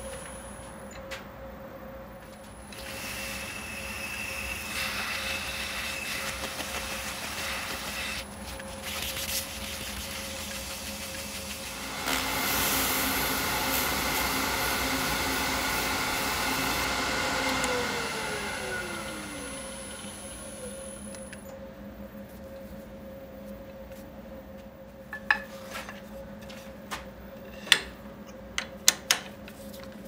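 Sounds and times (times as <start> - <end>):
tool hissing on spinning wood: 2.8 - 8.3, 9.9 - 21.1
wood lathe humming: 11.6 - 21.4.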